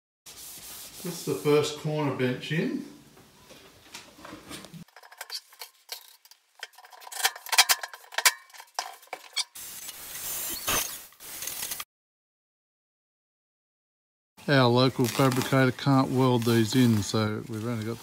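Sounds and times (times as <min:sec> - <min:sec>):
metal benches clinking and clattering: 0:04.2 - 0:09.5.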